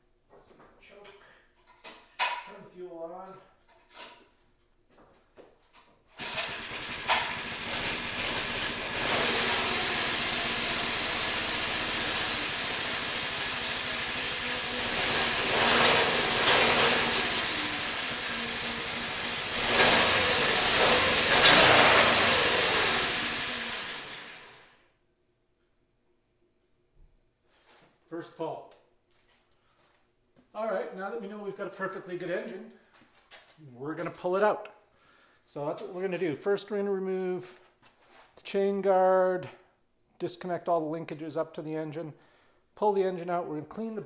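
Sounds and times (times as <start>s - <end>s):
mini bike engine running and revving: 6.2s - 24.4s.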